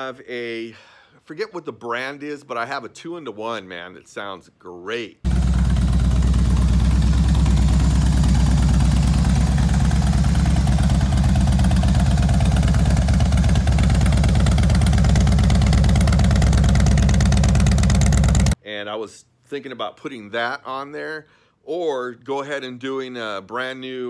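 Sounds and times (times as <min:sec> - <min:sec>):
motorcycle engine idling: 0:05.3 - 0:18.6.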